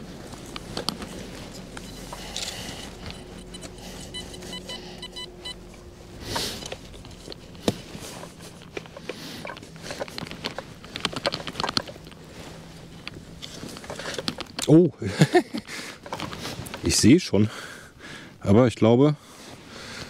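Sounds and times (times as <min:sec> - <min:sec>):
metal detector beeping: 0:00.6 - 0:10.7.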